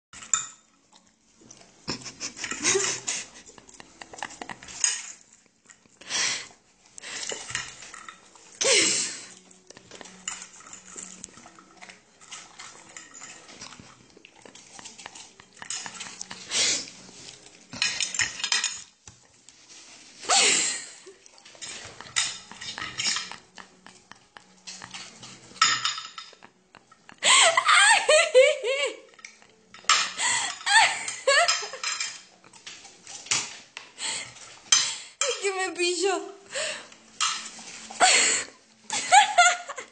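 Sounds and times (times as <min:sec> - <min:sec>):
cutlery clinking on a ceramic plate: 0:00.2 - 0:00.8, 0:03.8 - 0:05.8, 0:07.2 - 0:08.3, 0:09.8 - 0:16.5, 0:17.7 - 0:19.2, 0:21.6 - 0:27.1, 0:29.1 - 0:33.6, 0:37.1 - 0:37.9.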